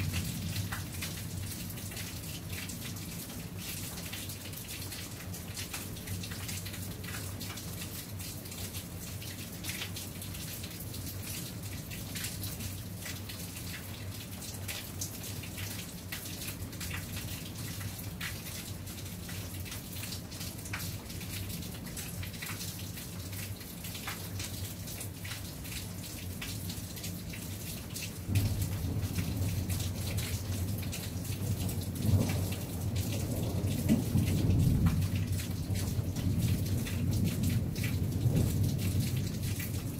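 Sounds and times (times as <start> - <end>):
rain drops tapping: 0.0 - 39.9
thunder rumbling: 28.3 - 39.9.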